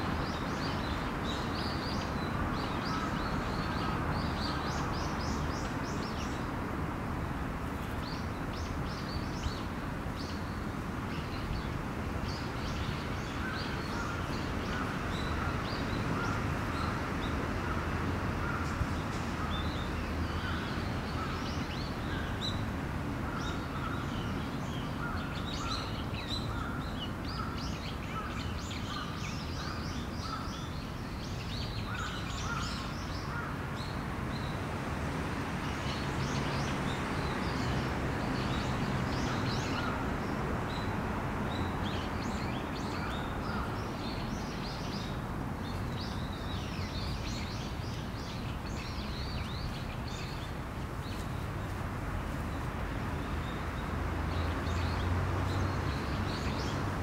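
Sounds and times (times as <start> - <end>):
small birds chirping: 35.6 - 51.8.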